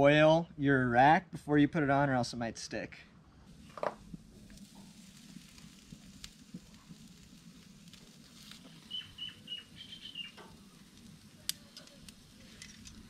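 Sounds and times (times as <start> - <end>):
bird chirping: 8.7 - 10.4
metal tongs clicking on grill: 10.4 - 13.0.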